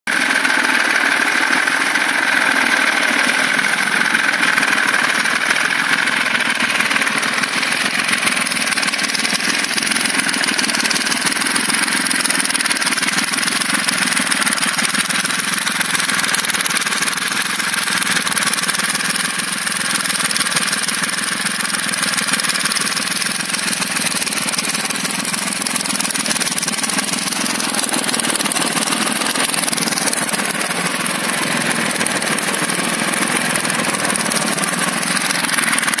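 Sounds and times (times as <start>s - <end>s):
diesel tractor engine idling: 0.1s - 36.0s.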